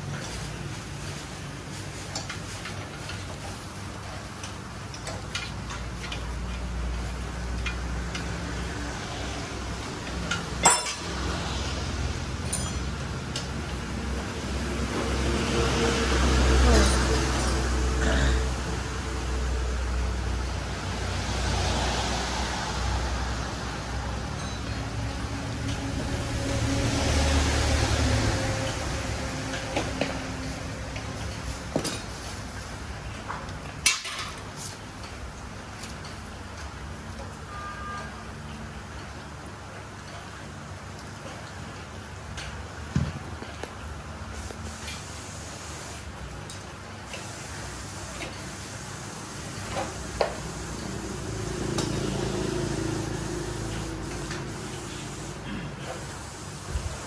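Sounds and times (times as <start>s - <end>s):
metal parts and tools clinking: 10.2s - 11.2s, 12.4s - 13.4s
steady hiss: 53.3s - 57.0s.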